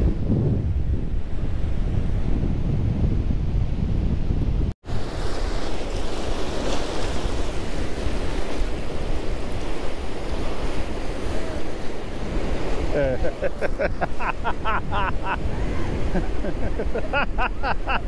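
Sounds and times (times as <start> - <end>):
wind buffeting microphone: 0.0 - 5.2, 6.0 - 18.0
surf breaking: 4.9 - 18.0.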